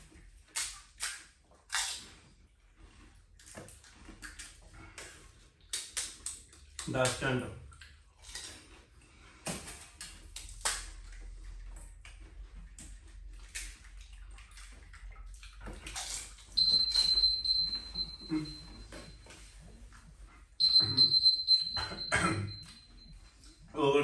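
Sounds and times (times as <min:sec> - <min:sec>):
crunching and slurping while eating: 0:00.0 - 0:20.6
high-pitched beeping timer alarm: 0:16.6 - 0:19.4, 0:20.6 - 0:23.5.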